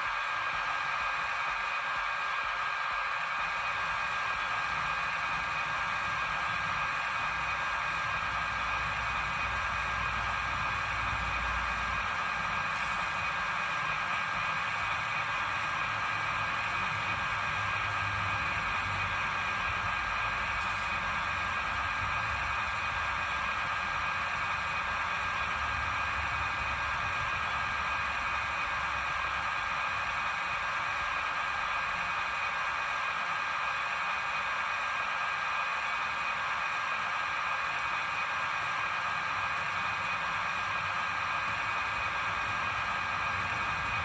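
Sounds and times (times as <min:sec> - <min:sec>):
high-pitched whine: 0:00.0 - 0:33.0.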